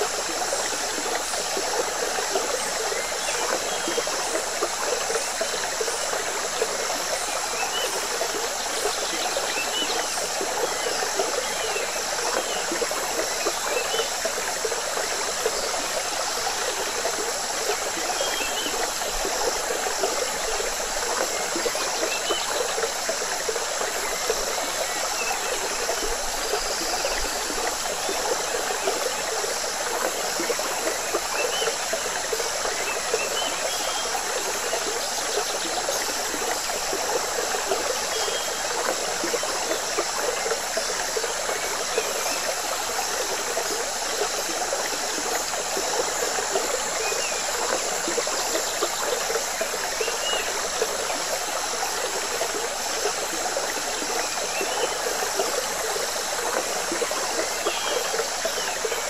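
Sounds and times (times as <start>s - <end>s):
river water flowing: 0.0s - 59.0s.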